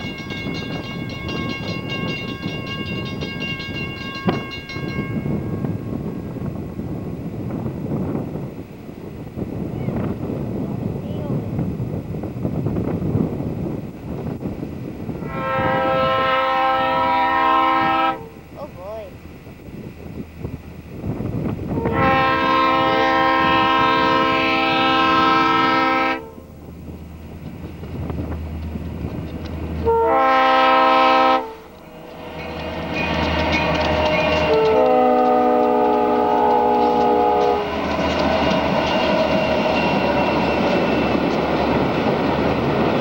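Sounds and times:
train wheels clacking: 0.0s - 8.2s, 26.9s - 29.9s, 30.9s - 43.0s
locomotive engine rumble: 0.0s - 43.0s
locomotive air horn: 15.2s - 18.4s, 21.7s - 26.5s, 29.8s - 39.8s.

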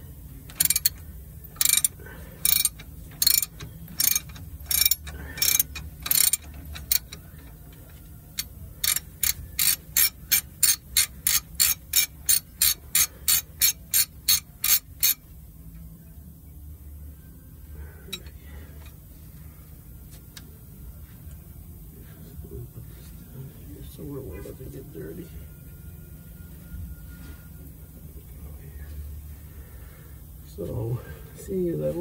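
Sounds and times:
socket ratchet clicking: 0.5s - 7.2s, 8.4s - 15.2s.

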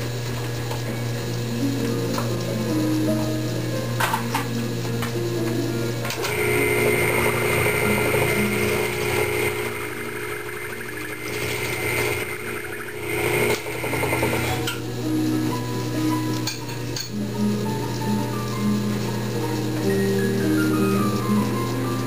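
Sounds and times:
milling machine motor hum: 5.8s - 22.0s
high-pitched cutting whine: 6.2s - 17.3s.

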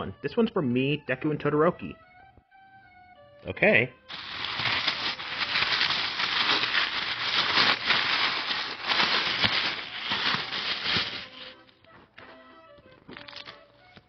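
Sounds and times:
wrapping paper crinkling and tearing: 4.1s - 11.7s.

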